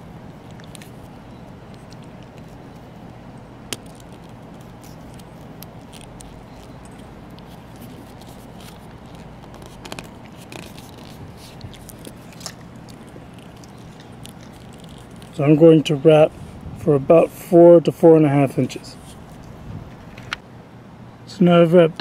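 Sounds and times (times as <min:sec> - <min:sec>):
steady low hum: 0:00.0 - 0:22.0
leather lace scraping: 0:00.2 - 0:15.4.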